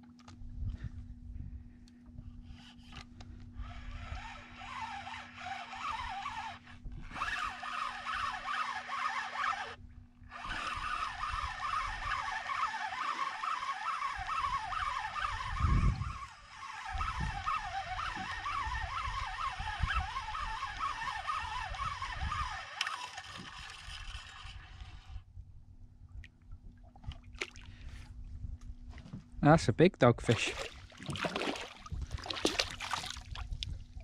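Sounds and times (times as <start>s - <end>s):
fishing reel whirring: 2.4s - 25.3s.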